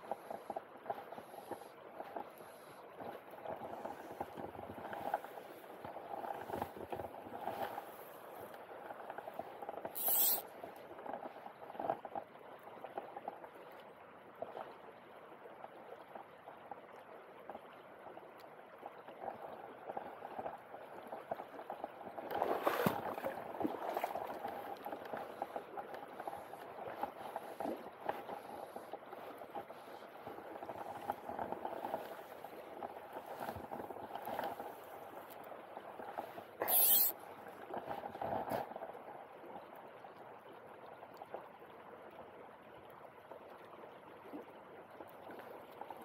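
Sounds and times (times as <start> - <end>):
river water babbling over cobbles: 0.0 - 46.0
brief sharp hiss: 36.6 - 37.1.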